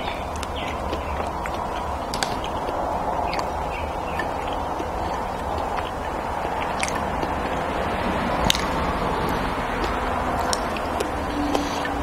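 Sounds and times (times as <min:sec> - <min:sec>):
chewing: 0:00.0 - 0:12.0.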